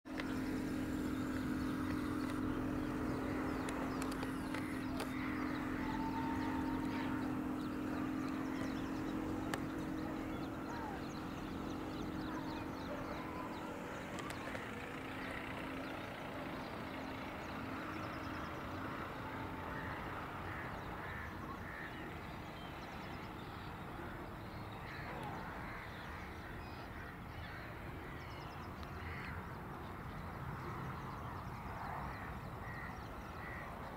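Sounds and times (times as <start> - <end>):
low hum: 0.1 - 20.5
birds chirping: 0.1 - 33.9.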